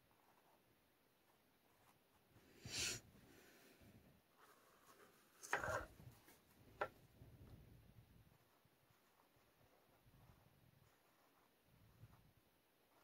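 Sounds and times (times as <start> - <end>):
board scraping on tabletop: 5.4 - 5.9.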